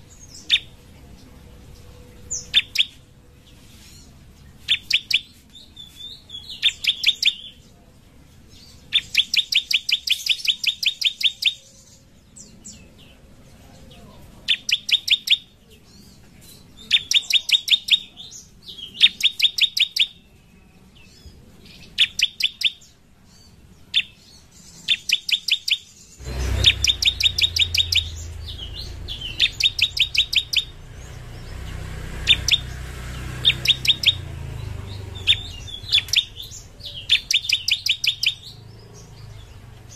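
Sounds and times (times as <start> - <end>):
bird singing sharp high notes: 2.1 - 3.0, 14.5 - 15.6, 24.0 - 39.6
low steady rumble: 26.2 - 37.7.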